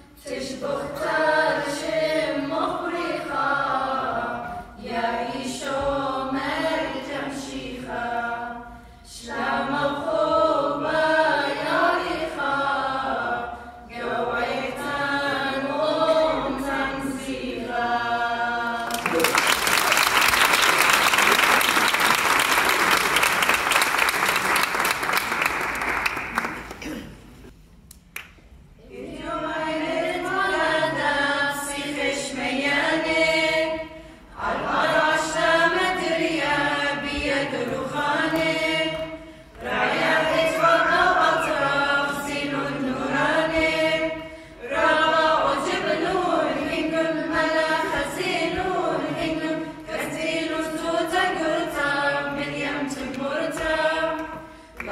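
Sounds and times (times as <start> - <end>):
choir singing unaccompanied hymn: 0.0 - 25.6, 28.8 - 54.9
audience applause: 18.8 - 26.9.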